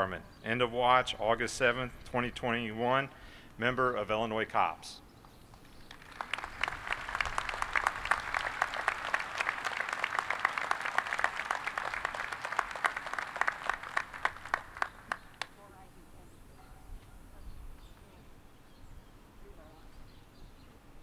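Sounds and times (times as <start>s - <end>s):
audience applauding: 5.6s - 15.6s.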